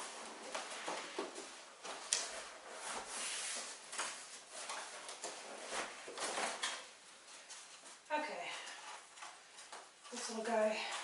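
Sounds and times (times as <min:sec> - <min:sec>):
cardboard rustling and scraping: 0:00.0 - 0:08.0.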